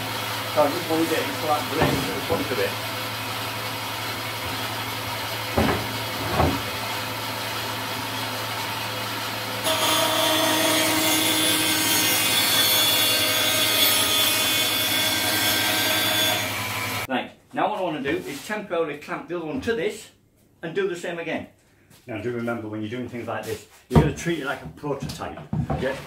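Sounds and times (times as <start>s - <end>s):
bandsaw cutting wood with whine: 0.0s - 17.1s
bandsaw humming: 0.0s - 17.1s
short knocks: 5.5s - 6.8s.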